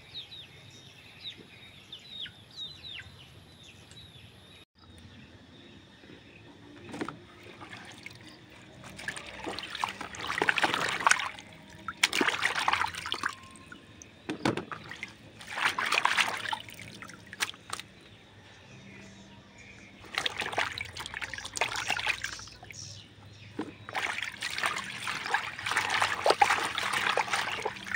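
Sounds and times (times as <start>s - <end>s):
water splashing and sloshing: 6.7s - 18.2s, 19.9s - 27.9s
water dripping: 7.6s - 14.1s, 14.7s - 17.9s, 20.0s - 22.9s, 23.9s - 27.9s.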